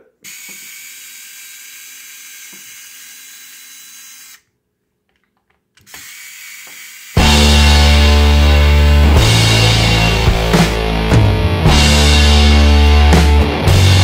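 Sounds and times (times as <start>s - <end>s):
electric screwdriver driving screw: 0.2s - 4.5s, 5.8s - 7.2s.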